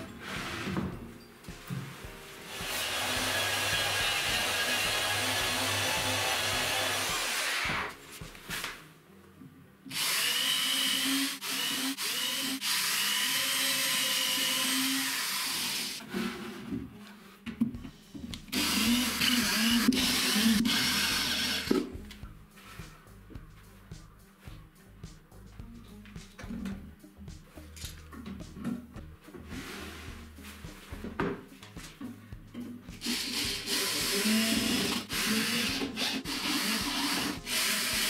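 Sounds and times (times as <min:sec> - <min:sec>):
belt sander on wood: 0:02.5 - 0:07.9, 0:33.0 - 0:38.0
drill motor whirring: 0:02.5 - 0:07.9, 0:09.9 - 0:16.0, 0:18.5 - 0:21.7, 0:33.0 - 0:38.0.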